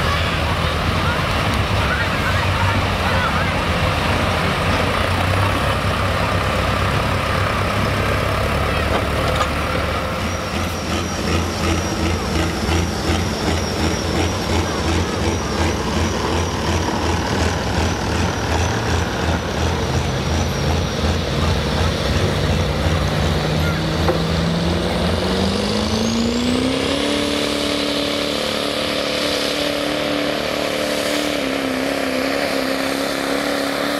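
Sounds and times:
diesel truck engine idling: 0.0 - 25.6.

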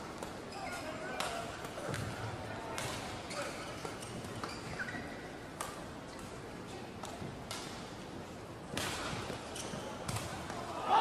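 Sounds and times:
indoor hall background noise: 0.0 - 11.0.

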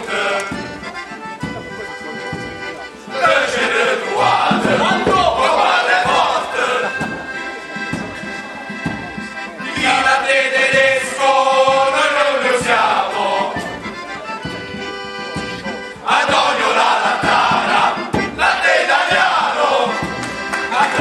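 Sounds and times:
men singing together: 0.0 - 0.7, 3.1 - 7.2, 9.6 - 13.7, 16.0 - 21.0
accordion: 0.0 - 21.0.

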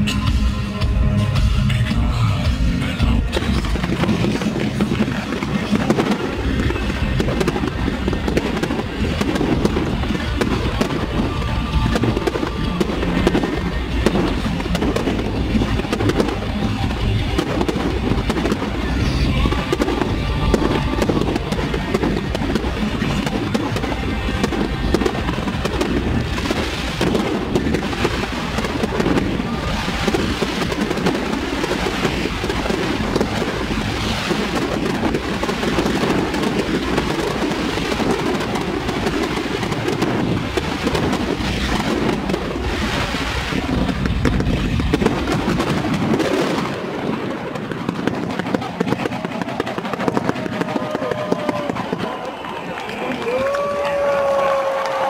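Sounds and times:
music: 0.0 - 46.3
fireworks bursting and crackling: 2.6 - 55.0.

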